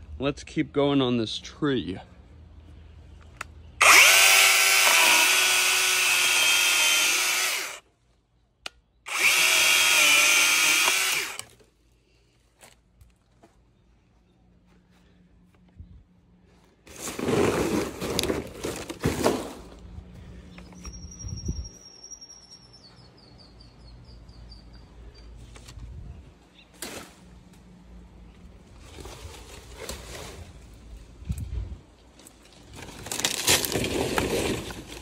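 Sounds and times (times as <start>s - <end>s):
bird singing: 20.4s - 25.5s
rustling of dry palm fronds: 28.3s - 35.0s.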